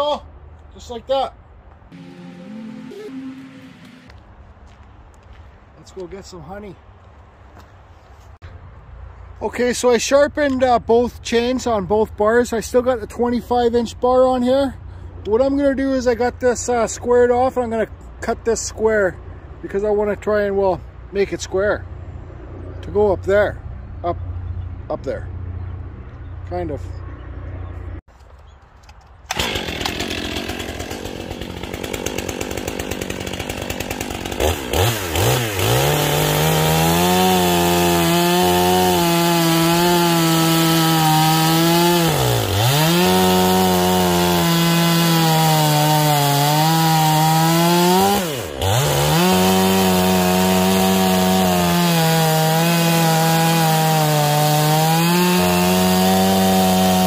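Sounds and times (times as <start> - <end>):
chainsaw cutting log: 29.3 - 57.0.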